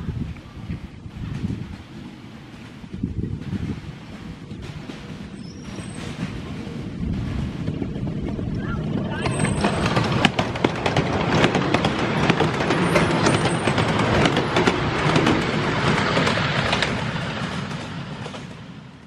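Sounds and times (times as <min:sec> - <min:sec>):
miniature steam train passing: 0:00.0 - 0:19.0
wheel clicks over rails: 0:07.6 - 0:18.6.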